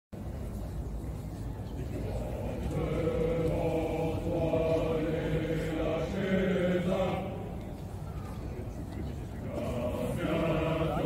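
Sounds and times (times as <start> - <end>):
voices chanting in unison: 2.0 - 7.7, 9.4 - 11.0.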